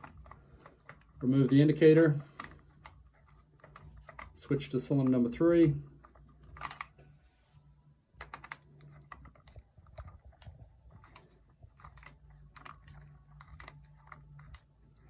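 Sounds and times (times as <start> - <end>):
low steady hum: 0.0 - 15.0
small metal parts clicking: 8.2 - 15.0.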